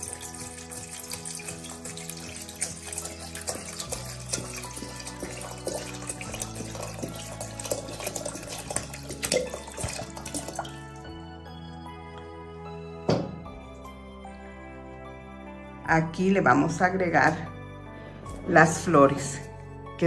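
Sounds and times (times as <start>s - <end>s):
water pouring into metal pot: 0.0s - 11.9s
soft background music: 0.0s - 20.0s.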